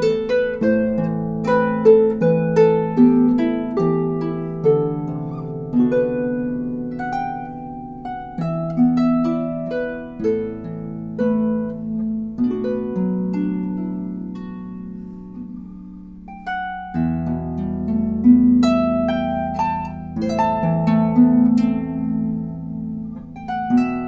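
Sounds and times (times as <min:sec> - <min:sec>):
harp playing folk tune: 0:00.0 - 0:24.0.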